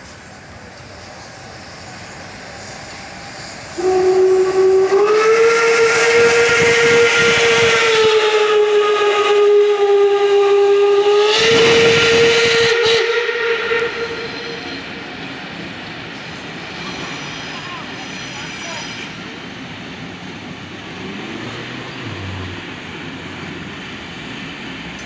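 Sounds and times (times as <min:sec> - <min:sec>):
steam locomotive whistle blast: 0:02.6 - 0:15.1.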